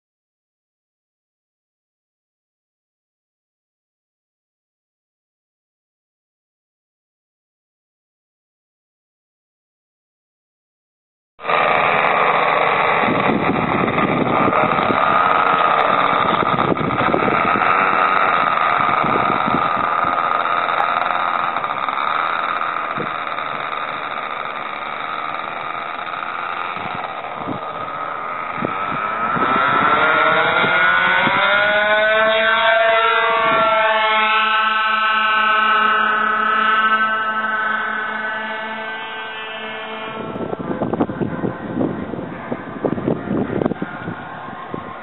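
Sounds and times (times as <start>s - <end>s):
model plane engines buzzing: 11.4s - 45.0s
rising engine whine: 11.4s - 45.0s.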